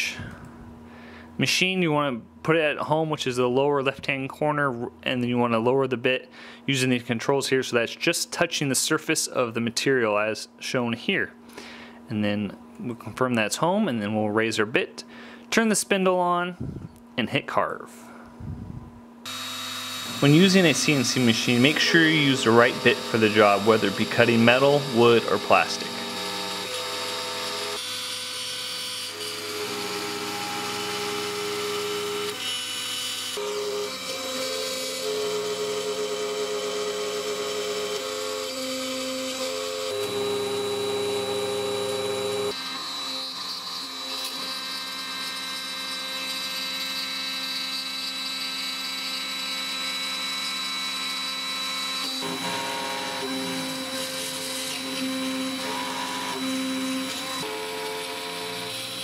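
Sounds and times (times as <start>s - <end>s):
low machine tones changing pitch: 18.4s - 26.7s
cnc router spindle whine: 19.3s - 59.0s.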